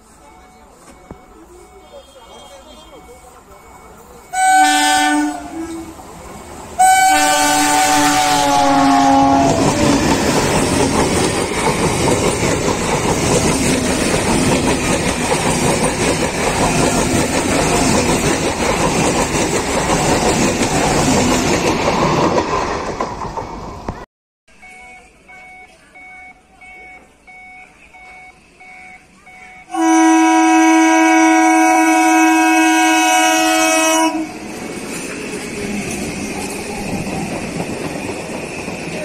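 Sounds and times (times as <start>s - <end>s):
train passing with loud rumble: 0.0s - 24.0s, 29.5s - 39.0s
train horn blast: 4.3s - 6.0s, 6.8s - 10.0s, 29.7s - 34.4s
wheels clattering over rail joints: 9.6s - 24.0s.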